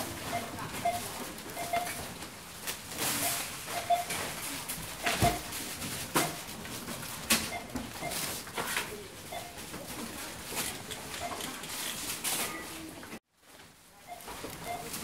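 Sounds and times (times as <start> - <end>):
noisy shop background: 0.0 - 15.0
barcode scanner beeping: 0.2 - 2.0, 3.2 - 4.2, 9.3 - 9.6, 14.1 - 15.0
knocks and clicks of items: 5.0 - 8.9.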